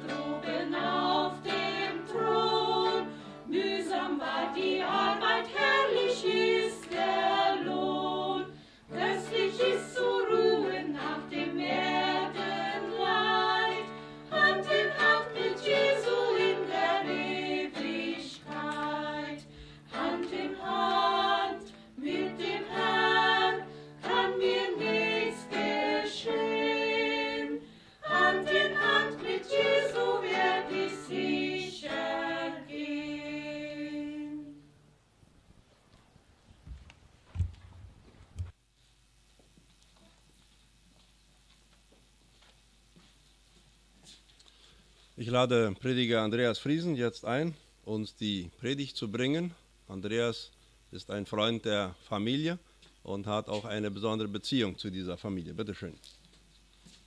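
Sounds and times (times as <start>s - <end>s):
women singing a hymn: 0.0s - 34.7s
acoustic guitar: 0.0s - 34.9s.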